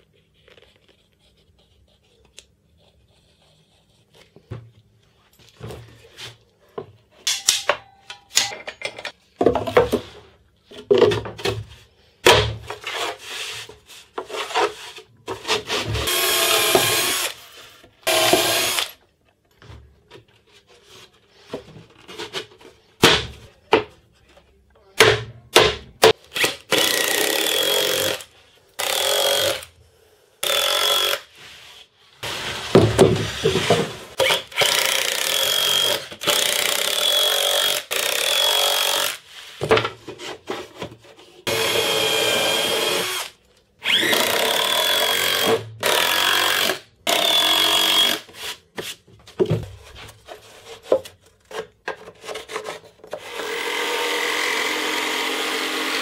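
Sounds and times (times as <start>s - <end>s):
cordless drill whining: 16.0s - 17.4s, 18.1s - 19.0s, 41.5s - 48.2s, 53.2s - 56.0s.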